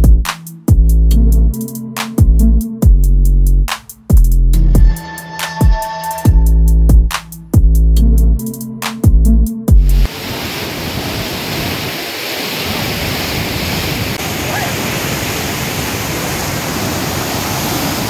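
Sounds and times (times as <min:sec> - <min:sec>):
music with heavy bass beat: 0:00.0 - 0:10.1
white-water rapids rushing: 0:10.1 - 0:18.0.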